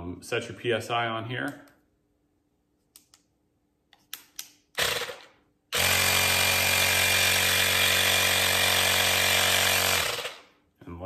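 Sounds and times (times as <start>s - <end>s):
compressor motor running: 4.8s - 10.5s.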